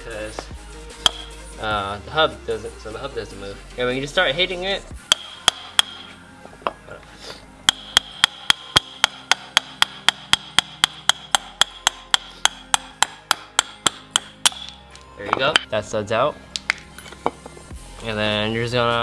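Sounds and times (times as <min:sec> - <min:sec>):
hammer striking metal: 0:01.0 - 0:01.4, 0:05.0 - 0:06.8, 0:07.6 - 0:15.7.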